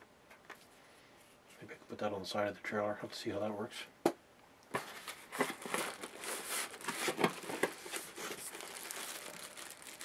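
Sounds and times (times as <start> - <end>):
plastic wrapping crinkling: 4.8 - 10.0
foam packing rubbing: 5.0 - 10.0.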